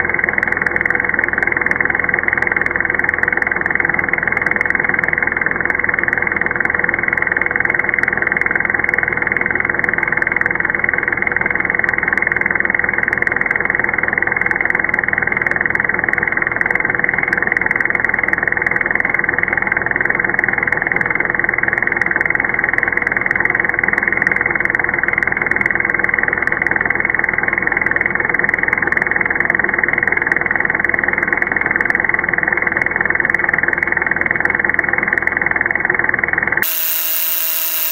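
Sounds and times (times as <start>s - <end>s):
power drill running: 36.6s - 37.9s.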